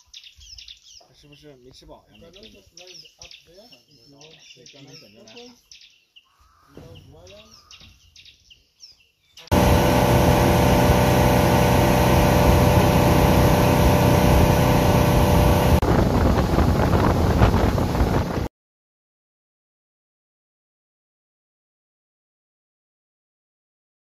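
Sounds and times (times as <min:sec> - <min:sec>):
motorboat engine running: 0:09.5 - 0:18.5
rushing air: 0:09.5 - 0:18.5
water rushing in wake: 0:09.5 - 0:18.5.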